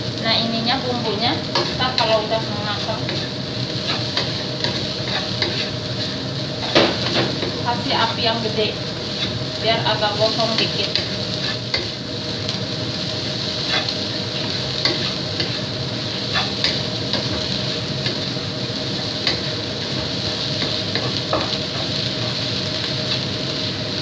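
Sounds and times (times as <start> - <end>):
rice sizzling in a wok: 0.0 - 24.0
spatula scraping and knocking pan: 1.5 - 7.7, 13.5 - 18.3, 18.9 - 22.5.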